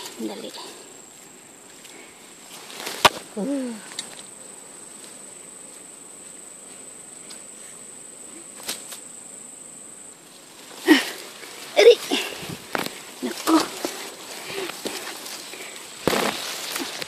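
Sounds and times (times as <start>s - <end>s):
high-pitched insect call: 0.0s - 17.0s
light rustling: 10.3s - 17.0s.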